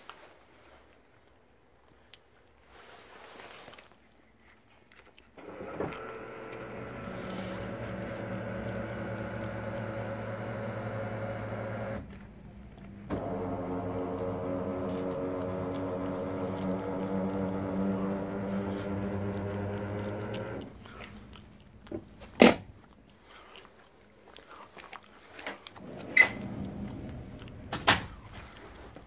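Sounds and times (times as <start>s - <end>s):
electric motor humming: 5.4s - 21.4s.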